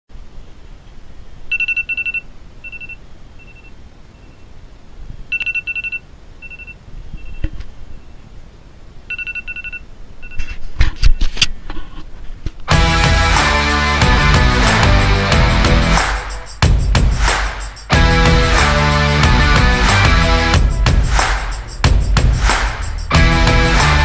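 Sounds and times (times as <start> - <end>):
phone alarm beeping: 1.5 - 4.4, 5.3 - 7.4, 9.1 - 10.4.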